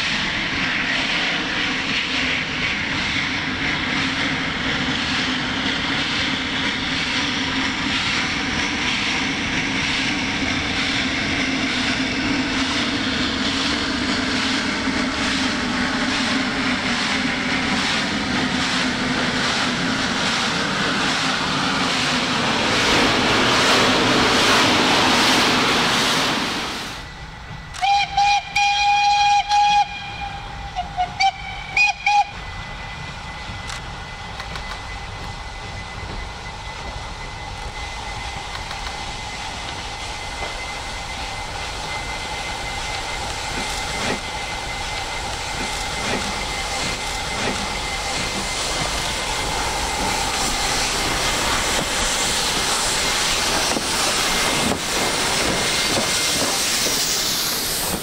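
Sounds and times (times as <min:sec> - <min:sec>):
locomotive running noise: 0:00.0 - 0:58.0
steam hissing: 0:00.0 - 0:58.0
steam whistle: 0:27.8 - 0:32.4.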